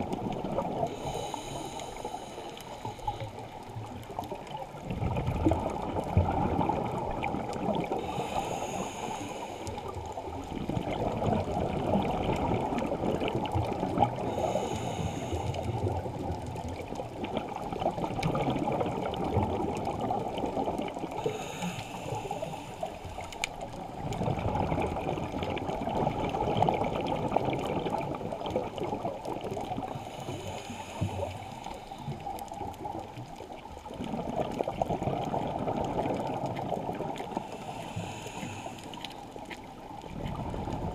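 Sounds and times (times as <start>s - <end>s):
muffled rush of exhaled bubbles: 0.0s - 40.9s
regulator inhale hiss: 0.8s - 3.8s, 7.9s - 10.4s, 14.0s - 16.2s, 21.2s - 23.6s, 29.7s - 32.4s, 37.2s - 39.6s.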